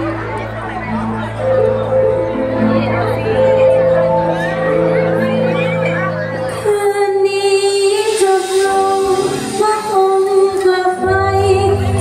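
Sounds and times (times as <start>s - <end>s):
woman singing long notes: 6.6s - 12.0s
bass guitar: 11.0s - 12.0s.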